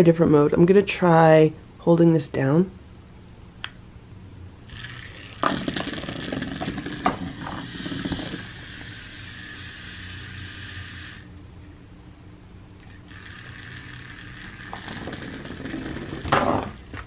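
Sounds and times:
toy motor whirring: 0:04.7 - 0:11.3, 0:12.8 - 0:17.0
toy rattling and scraping: 0:04.7 - 0:11.3, 0:12.8 - 0:17.0.

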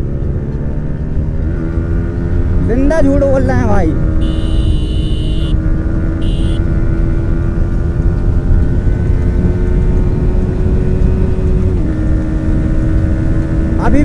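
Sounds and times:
motorcycle engine at steady revs: 0:04.1 - 0:14.0
high electronic beeps: 0:04.2 - 0:05.5, 0:06.2 - 0:06.6
wind rush on microphone: 0:05.7 - 0:14.0.

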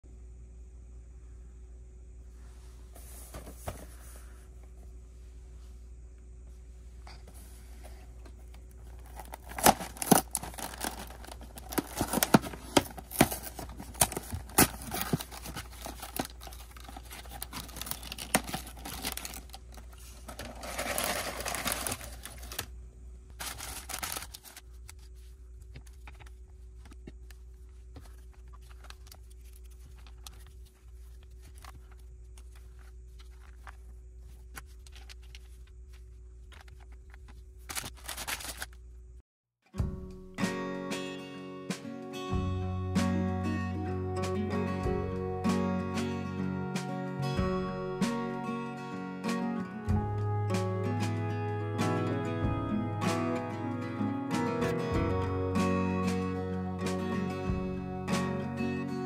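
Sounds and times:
plastic bags crinkling: 0:08.7 - 0:22.7, 0:23.3 - 0:26.8, 0:27.4 - 0:38.8
cardboard box tearing: 0:09.0 - 0:19.6, 0:20.2 - 0:22.7, 0:23.4 - 0:24.6.

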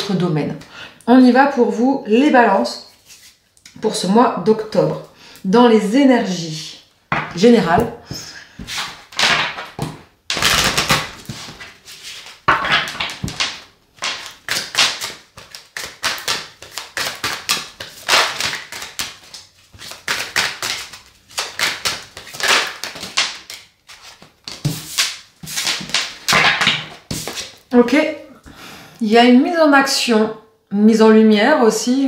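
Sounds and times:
cards being shuffled: 0:08.6 - 0:27.7.

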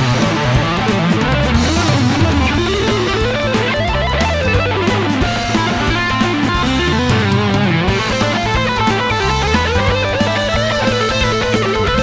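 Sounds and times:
bass notes: 0:00.0 - 0:12.0
drums: 0:00.0 - 0:12.0
electric guitar lead runs: 0:00.0 - 0:12.0.

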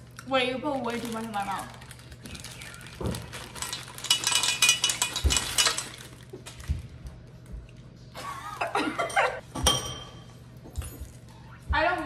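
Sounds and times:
plastic bag crinkling: 0:00.0 - 0:06.7.

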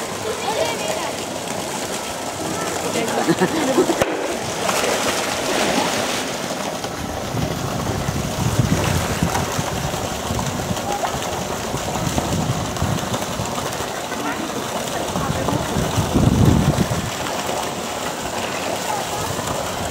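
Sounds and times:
water splashing and sloshing: 0:00.0 - 0:19.9.

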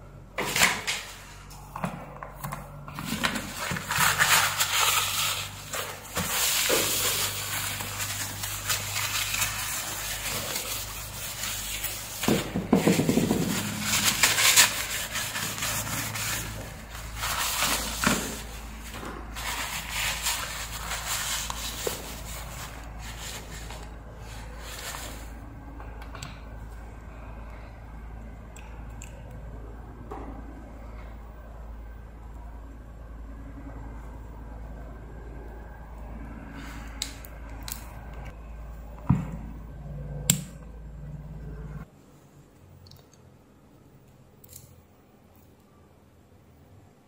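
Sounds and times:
paper rustling and crumpling: 0:02.9 - 0:25.3.

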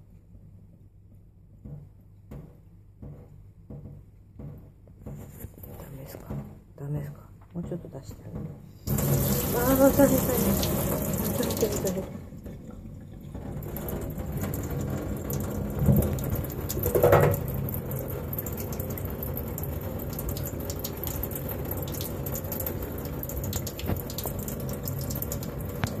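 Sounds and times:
tap water splashing into sink: 0:08.3 - 0:26.0.

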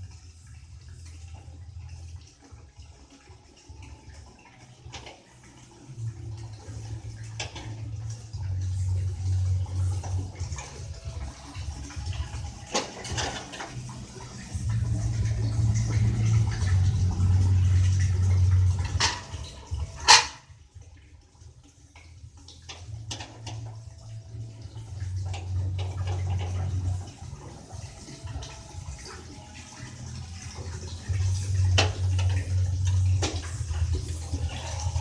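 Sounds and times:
low rumbling noise: 0:05.9 - 0:21.0, 0:22.6 - 0:29.2, 0:29.8 - 0:35.0.

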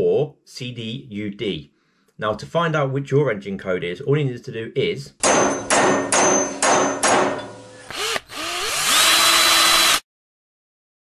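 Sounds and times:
sharp strikes: 0:05.2 - 0:07.7
motor spinning up and running: 0:07.8 - 0:10.1.

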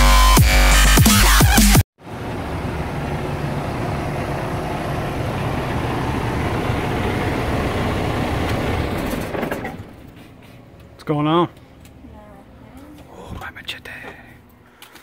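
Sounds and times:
diesel truck engine idling: 0:02.0 - 0:10.8.

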